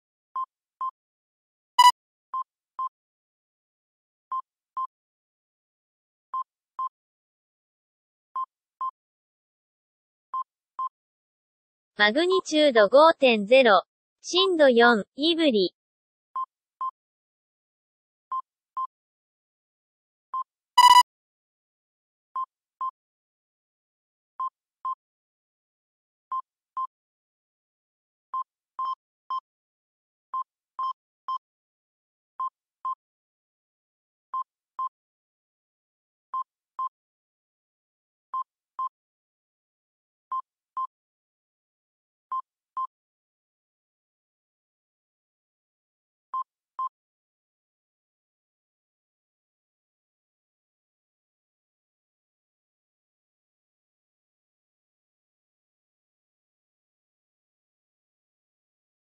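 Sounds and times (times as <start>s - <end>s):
electronic double beeps: 20.8s - 21.0s.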